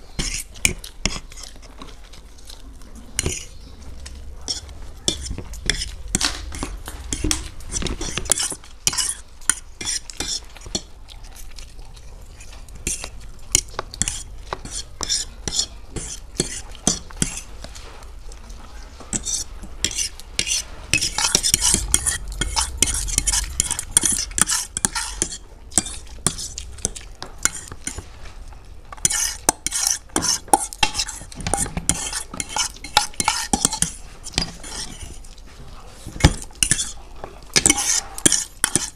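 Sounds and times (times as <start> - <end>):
chewing: 0.0 - 38.9
forks scraping on plates: 4.4 - 10.9, 12.4 - 17.9, 19.1 - 28.1, 29.0 - 35.3, 36.0 - 38.9.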